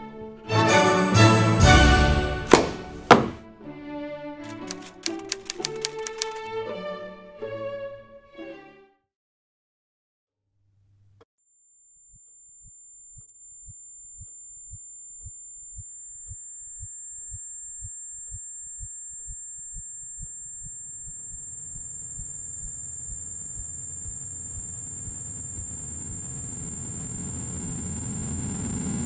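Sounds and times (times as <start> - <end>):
thin steady high tones: 12.0 - 29.0
heartbeat thumps: 15.2 - 24.7
low drone: 17.1 - 29.0.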